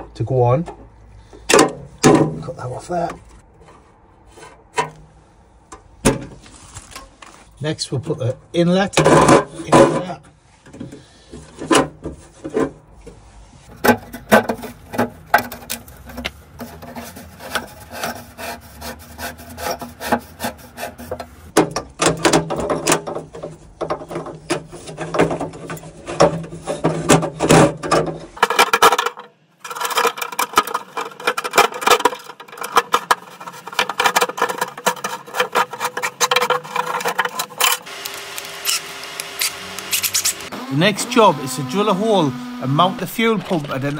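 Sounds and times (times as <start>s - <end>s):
corrugated hoses rasping and scraping: 9.4s - 43.9s.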